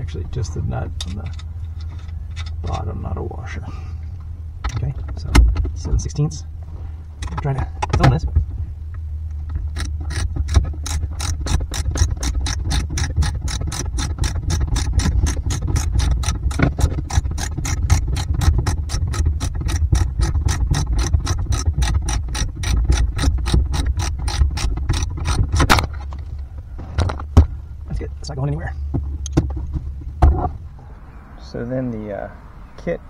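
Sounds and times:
socket ratchet clicking: 9.7 - 25.8.

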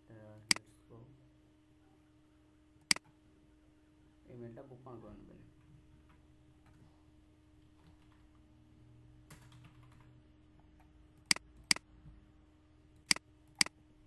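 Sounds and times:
keyboard typing: 9.3 - 10.2, 10.8 - 11.9.

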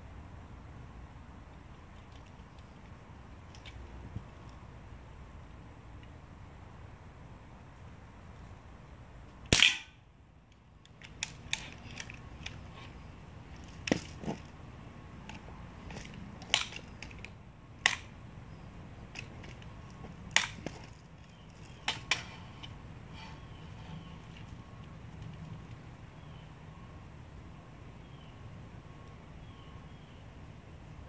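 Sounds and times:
bb gun firing snaps: 9.5 - 9.9.

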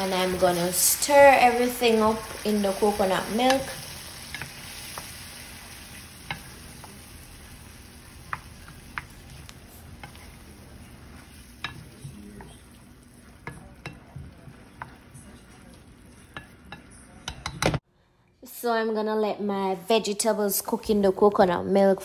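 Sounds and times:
spoon scraping pan: 0.0 - 17.6.

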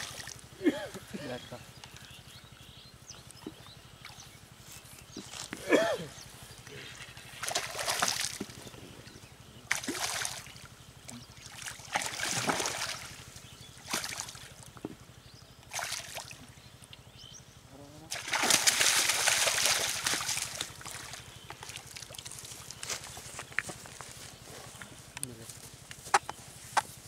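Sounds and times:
fish splashing in water: 7.2 - 8.6, 9.7 - 14.7, 15.7 - 16.4, 18.1 - 22.8.

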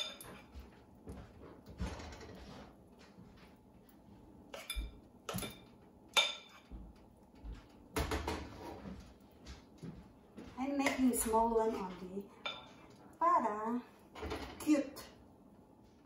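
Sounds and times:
utensil clinking against bowl and pan: 0.0 - 0.6, 4.5 - 6.8, 10.8 - 13.0.

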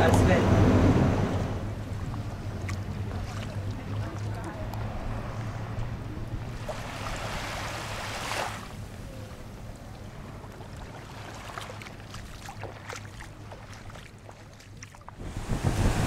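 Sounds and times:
low rumble: 0.0 - 4.0.

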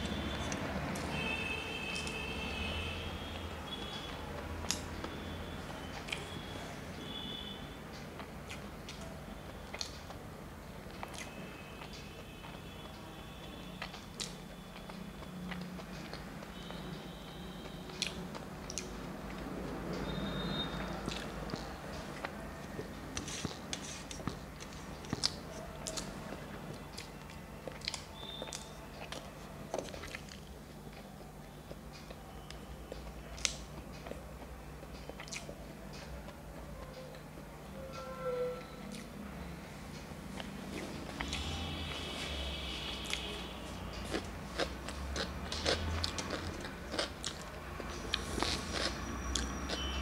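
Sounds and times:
person chewing with wet smacks: 0.0 - 37.5, 38.8 - 39.2, 39.9 - 50.0
wet mouth smacks and chewing: 23.2 - 26.1, 27.0 - 31.1, 32.0 - 35.6.

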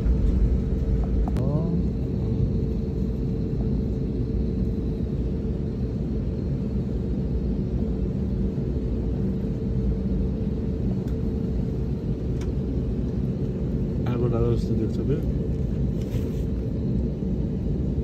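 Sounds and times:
faint steady hum: 0.0 - 18.0
jet engine rumble in cabin: 0.0 - 18.0.

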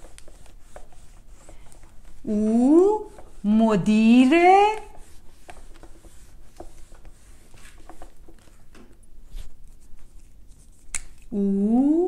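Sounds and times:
eraser rubbing on whiteboard: 0.0 - 8.5.

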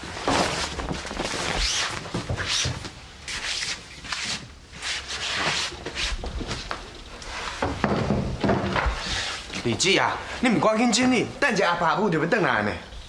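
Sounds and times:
tablecloth rustling and swishing: 0.0 - 7.9, 8.8 - 9.6.

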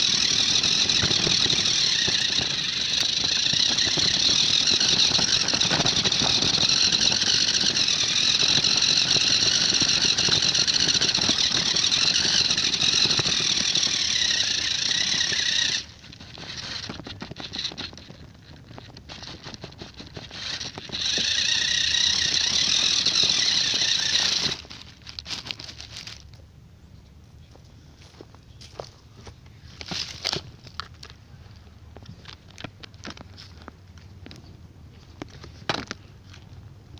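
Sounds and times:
toy car electric motor whining: 0.0 - 26.3
twigs crackling against car: 0.0 - 26.4, 28.1 - 36.6.

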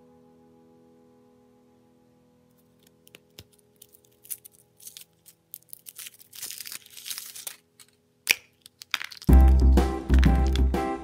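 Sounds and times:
foil wrapper crinkling and tearing: 2.6 - 10.7.

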